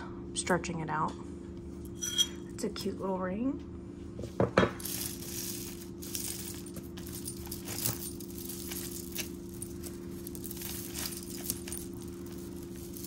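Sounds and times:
jewelry clicking and clinking: 4.7s - 13.0s.

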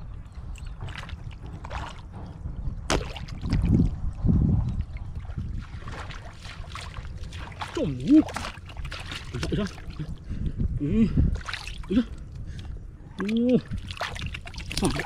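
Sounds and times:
heavy low thuds: 0.0s - 6.2s
steady low rumble: 0.0s - 15.0s
splashing in muddy water: 0.6s - 2.1s, 2.9s - 4.0s, 4.7s - 10.2s, 11.3s - 12.1s, 13.2s - 15.0s.

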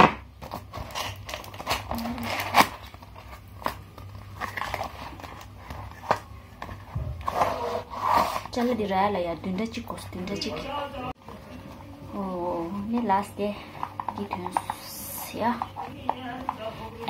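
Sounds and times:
packing tape ripping: 0.0s - 6.3s.

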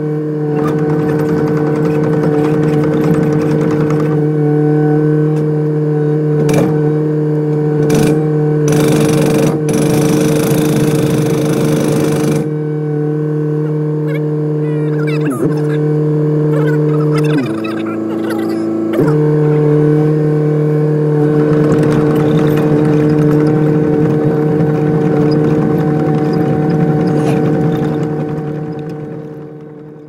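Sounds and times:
excavator diesel engine running: 0.0s - 4.3s, 6.4s - 30.0s
hydraulic breaker hammering: 0.6s - 4.3s, 6.4s - 6.8s, 7.6s - 12.6s, 21.2s - 30.0s.

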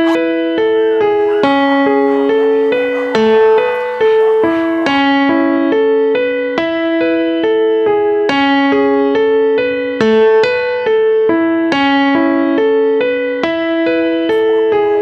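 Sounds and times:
piano-like keyboard broken chords: 0.0s - 15.0s.

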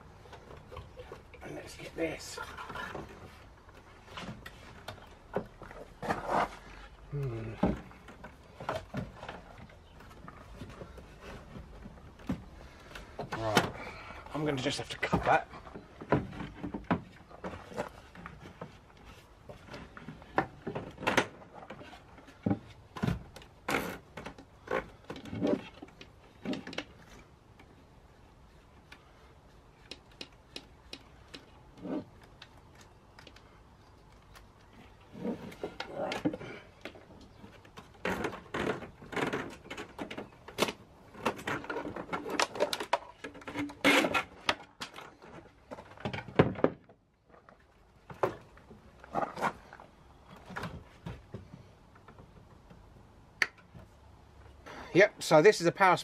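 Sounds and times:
cables rattling in wooden box: 34.8s - 51.5s.

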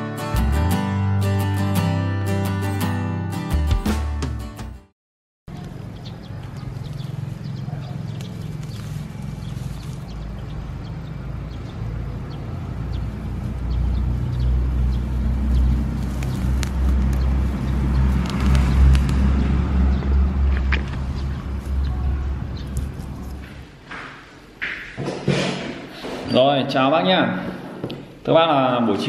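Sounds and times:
motor vehicle rumble: 5.5s - 24.6s
plants rustling and snapping: 6.4s - 10.5s, 15.2s - 22.0s, 22.6s - 24.2s.

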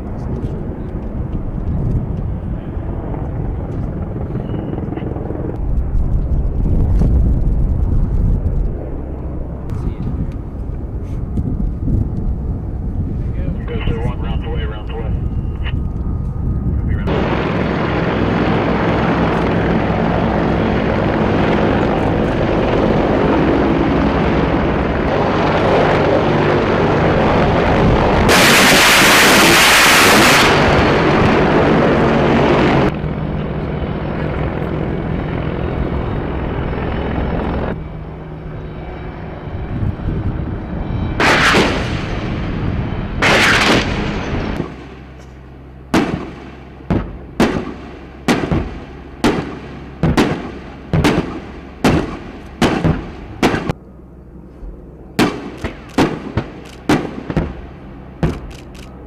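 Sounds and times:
helicopter rotor and engines: 0.0s - 59.0s
loud blasts: 27.7s - 32.9s, 41.2s - 45.1s, 45.9s - 53.8s, 55.2s - 58.6s
sharp cracks: 46.0s - 53.8s, 55.2s - 59.0s.

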